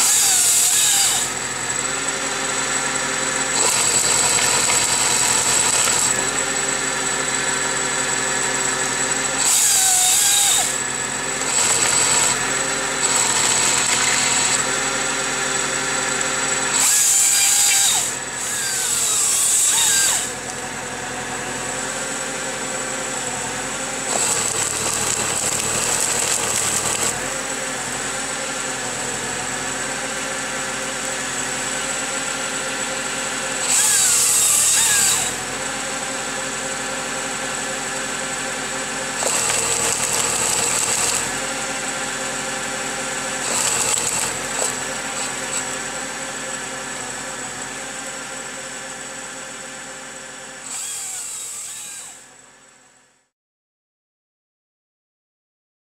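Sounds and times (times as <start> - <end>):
chain saw cutting tree stems: 0.0 - 2.8, 3.4 - 7.4, 8.1 - 20.6, 24.0 - 28.2, 33.6 - 35.5, 39.2 - 41.9, 43.4 - 45.9, 50.6 - 52.3
tractor engine running: 0.0 - 51.6.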